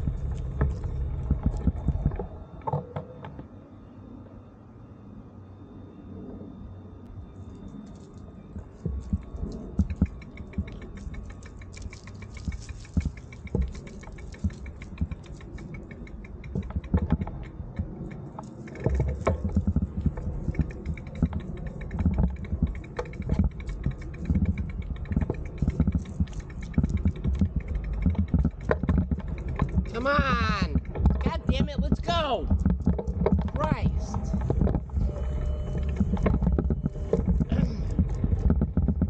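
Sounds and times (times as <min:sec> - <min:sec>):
low rumble: 0:00.0 - 0:02.7, 0:03.4 - 0:39.0
bicycle freewheel ticking: 0:09.0 - 0:31.4.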